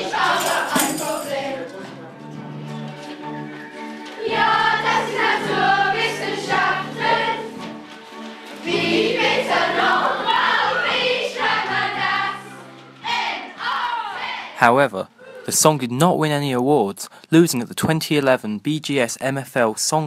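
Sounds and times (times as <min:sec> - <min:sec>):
children singing together: 0:00.0 - 0:02.1, 0:03.7 - 0:14.6.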